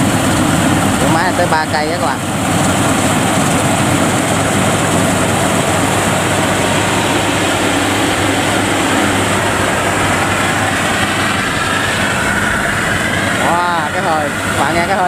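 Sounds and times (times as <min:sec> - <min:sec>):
combine harvester engine hum: 0:00.0 - 0:15.0
machinery noise: 0:00.0 - 0:15.0.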